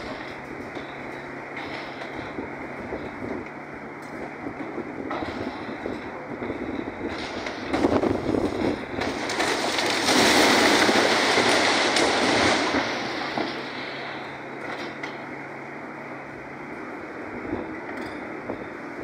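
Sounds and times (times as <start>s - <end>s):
excavator diesel engine running: 0.0s - 19.0s
debris crashing down: 5.1s - 15.2s.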